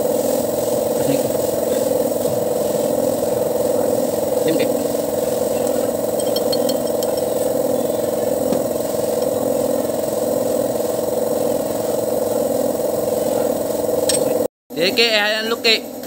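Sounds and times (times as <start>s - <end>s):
light metallic clinks: 6.2s - 7.5s.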